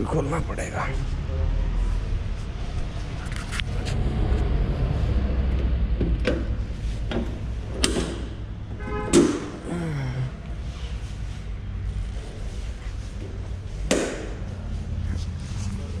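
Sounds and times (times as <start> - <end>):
steady low rumble: 0.0 - 16.0
latch and panel clicks: 7.8 - 8.3.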